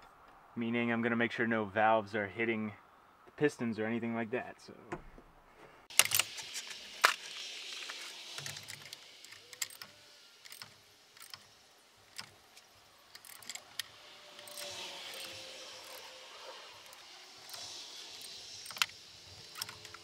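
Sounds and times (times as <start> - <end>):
sharp metallic clicks and clinks: 5.9 - 20.0.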